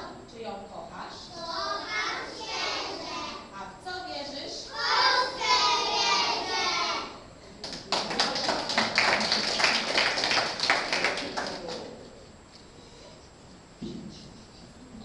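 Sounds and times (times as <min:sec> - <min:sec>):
children's voices in unison: 0:01.4 - 0:03.5, 0:04.6 - 0:07.2
applause: 0:07.6 - 0:12.0.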